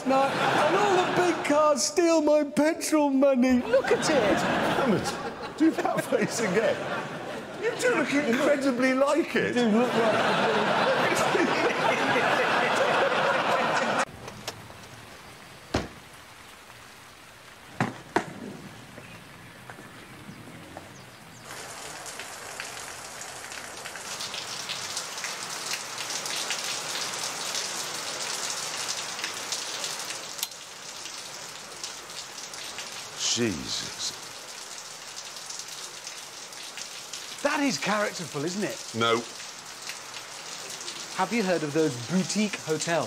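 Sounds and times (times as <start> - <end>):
audience laughter: 0.0 - 1.6, 3.6 - 8.8, 9.6 - 14.1
heavy rain hissing: 0.0 - 2.1, 3.4 - 43.0
sharp knocks: 17.8 - 18.5.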